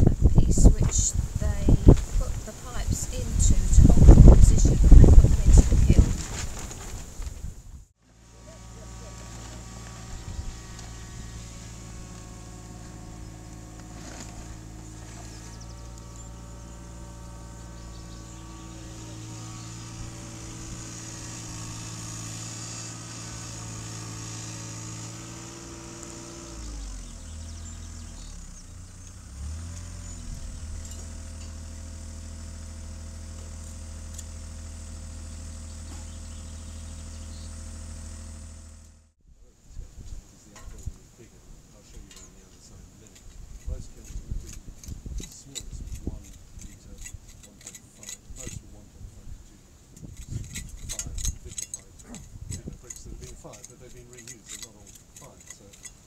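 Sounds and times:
excavator diesel engine running: 0:08.1 - 0:39.1.

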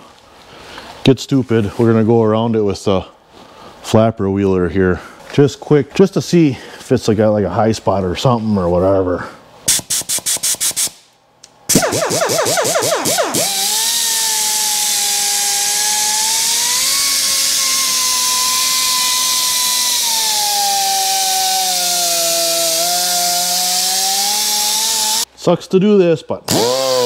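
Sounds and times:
air die grinder whining: 0:11.7 - 0:25.3, 0:26.5 - 0:27.0.

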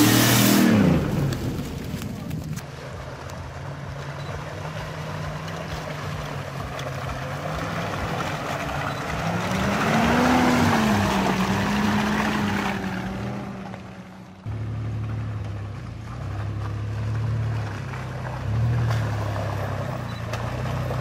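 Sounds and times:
off-road vehicle engine under load: 0:00.0 - 0:21.0.

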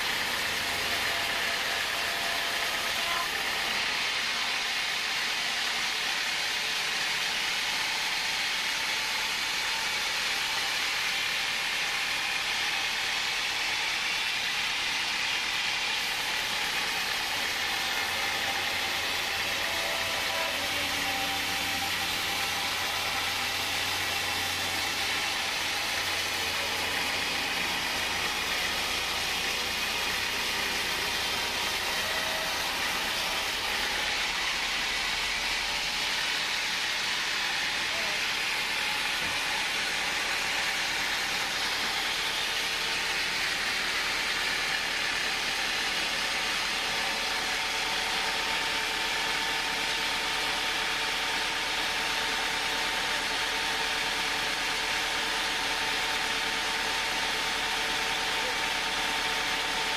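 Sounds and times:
motor running: 0:00.0 - 0:59.9
saw blade whining through wood: 0:00.0 - 0:59.9.

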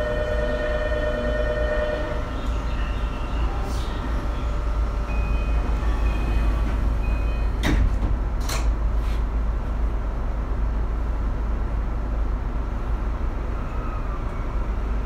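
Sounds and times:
train low rumble: 0:00.0 - 0:15.0
door chime beeps: 0:05.1 - 0:07.7.

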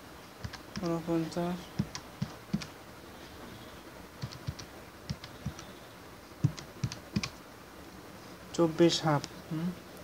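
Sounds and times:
keyboard keystrokes: 0:01.8 - 0:02.7, 0:04.2 - 0:05.6, 0:06.4 - 0:07.4.

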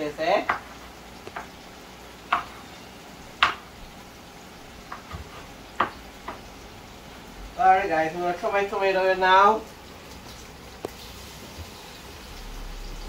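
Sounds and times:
food sizzling in a pot: 0:00.0 - 0:13.0
knife chopping on wooden board: 0:02.3 - 0:02.6, 0:04.9 - 0:06.4.

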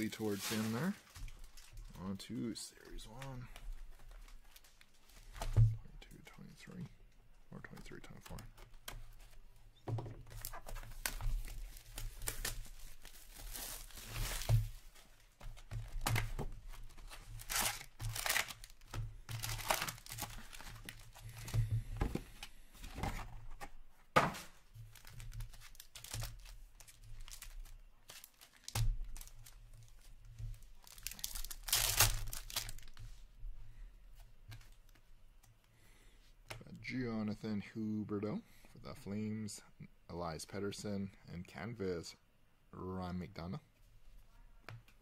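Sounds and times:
foil wrappers tearing and crinkling: 0:11.0 - 0:14.6, 0:17.2 - 0:21.1, 0:24.9 - 0:30.0, 0:30.8 - 0:33.0.

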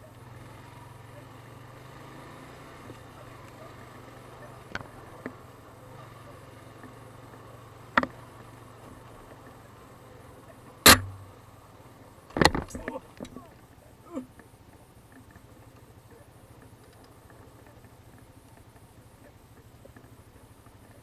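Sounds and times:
atv engine running: 0:00.0 - 0:21.0
sharp knocks over bumps: 0:07.9 - 0:08.4, 0:10.9 - 0:11.4, 0:12.3 - 0:13.6.

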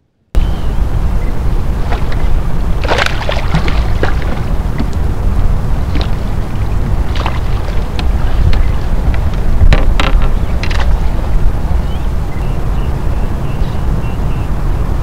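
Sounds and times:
wind buffeting microphone: 0:00.4 - 0:15.0
water splashes: 0:01.0 - 0:12.3
small knocks around kayak: 0:05.9 - 0:06.2, 0:07.1 - 0:11.1.

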